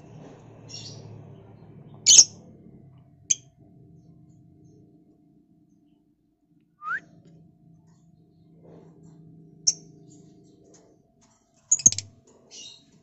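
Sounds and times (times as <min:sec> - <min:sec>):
lovebirds chirping and squawking: 0:00.6 - 0:01.1, 0:01.9 - 0:02.4, 0:07.9 - 0:10.9, 0:11.6 - 0:13.0.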